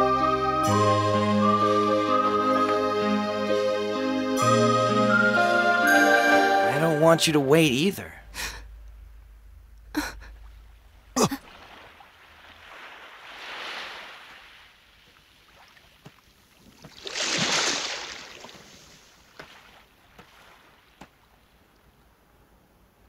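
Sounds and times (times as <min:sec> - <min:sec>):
waves washing onto sandy beach: 0:11.5 - 0:15.8.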